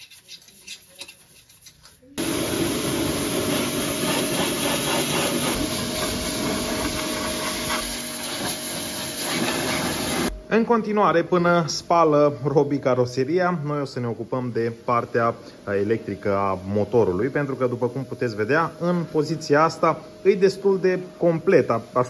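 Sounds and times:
brush scrubbing: 0.0s - 2.2s, 3.2s - 10.3s
pressure washer spraying: 2.2s - 10.3s.

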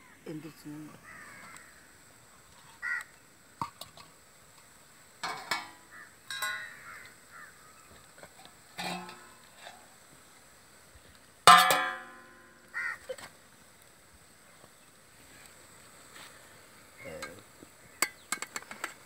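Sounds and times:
crows cawing: 1.0s - 2.0s, 2.8s - 3.2s, 5.5s - 8.0s, 12.5s - 13.1s.

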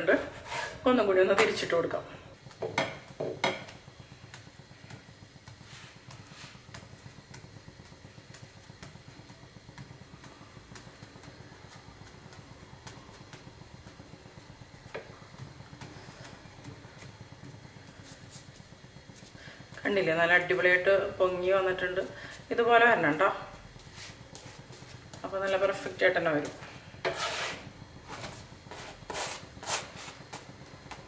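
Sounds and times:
gas burner rushing: 0.0s - 31.0s
wooden spatula tapping pan: 2.6s - 3.8s.

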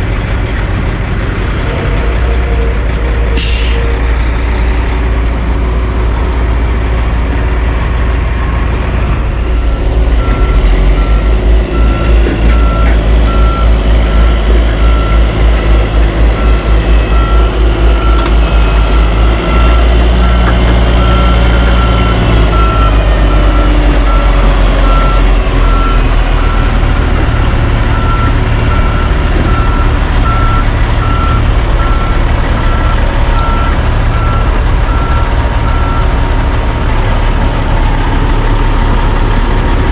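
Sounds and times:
diesel truck engines rumbling: 0.0s - 39.9s
truck backup alarm beeping: 9.6s - 39.1s.

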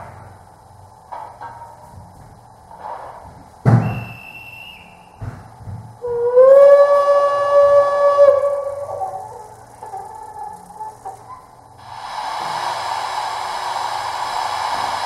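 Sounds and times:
soft steam puffs: 0.0s - 15.0s
loud steam hiss: 2.7s - 5.4s, 10.7s - 15.0s
deep steam whistle: 3.8s - 5.2s, 6.0s - 15.0s.

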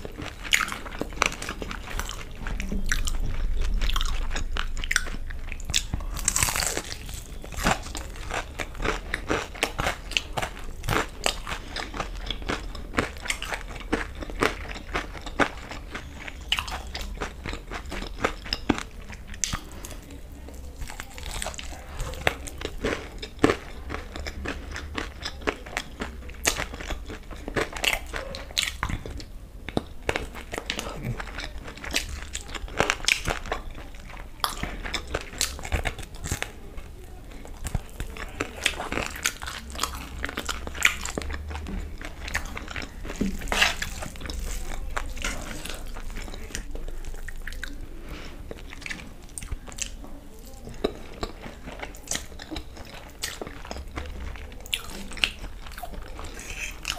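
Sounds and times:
crisp crunches of biting food: 0.0s - 36.6s, 37.3s - 50.0s, 50.6s - 56.9s
wet chewing with mouth clicks: 0.0s - 56.9s.

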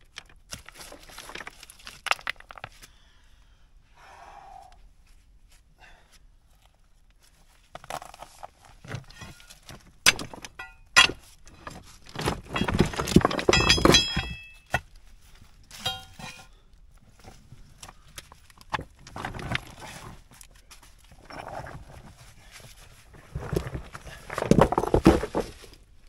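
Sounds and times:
rocks knocking and clattering: 0.0s - 2.9s, 7.7s - 15.0s, 17.2s - 26.0s
ringing clinks of rocks: 10.1s - 11.2s, 12.5s - 14.8s, 15.8s - 16.4s.

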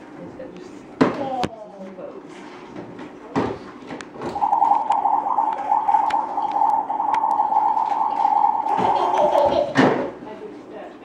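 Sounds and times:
wavering electronic tone: 4.2s - 9.5s.

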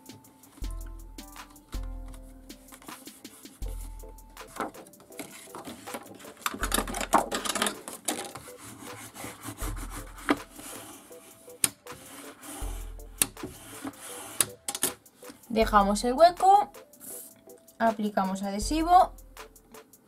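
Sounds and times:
hands rubbing cardstock: 2.1s - 6.5s, 8.4s - 14.6s
paper sliding and rustling: 2.1s - 14.5s.

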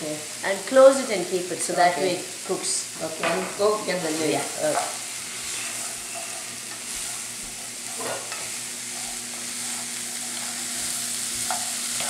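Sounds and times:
vegetables sizzling in oil: 0.0s - 12.0s
spatula scraping pan: 3.6s - 12.0s.

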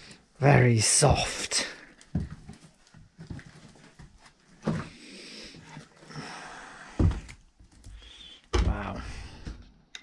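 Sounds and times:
footsteps on wooden stairs: 2.1s - 5.0s, 7.0s - 7.4s.

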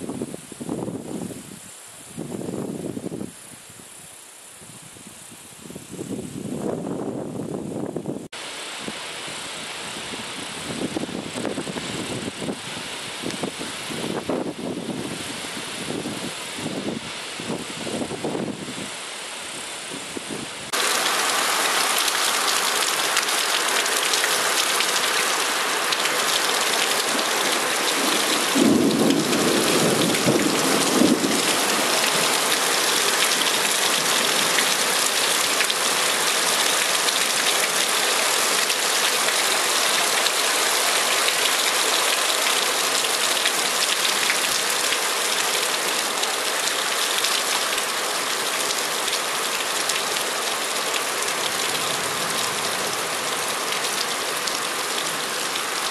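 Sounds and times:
heavy rain: 0.0s - 55.9s
thunder rumble: 27.1s - 32.5s.

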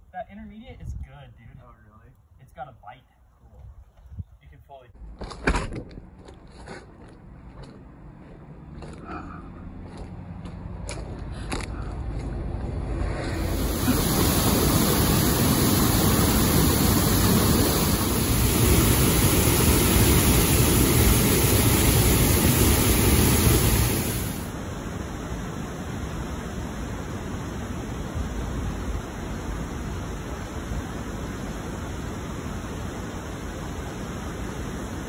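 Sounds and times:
outdoor hiss: 13.3s - 35.0s
waterfall roaring: 13.3s - 35.0s.

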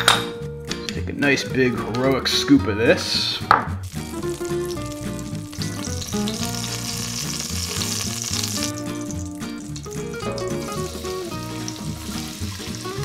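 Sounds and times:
background music: 0.0s - 13.0s
grease sizzling in a pot: 3.2s - 13.0s.

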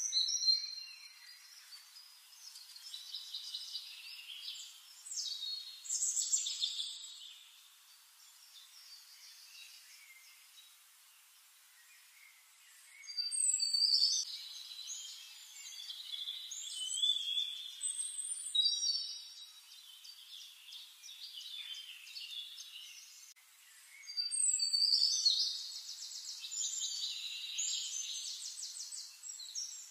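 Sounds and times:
songbird whistles and trills: 11.9s - 29.9s.

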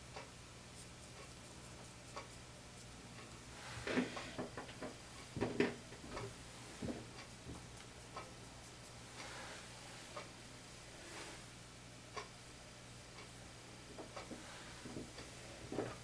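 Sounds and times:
handling knocks and rustles: 14.0s - 16.0s.

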